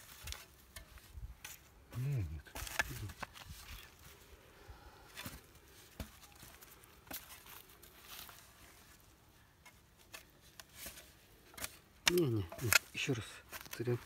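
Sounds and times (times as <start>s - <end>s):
shovel turning soil: 0.0s - 4.2s, 9.6s - 14.0s
damp soil crumbling: 0.0s - 14.0s.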